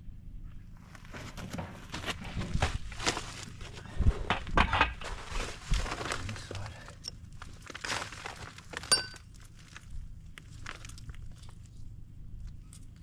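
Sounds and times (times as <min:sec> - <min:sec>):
footsteps on gravel: 0:00.8 - 0:11.7
ringing metallic clink: 0:08.9 - 0:09.2.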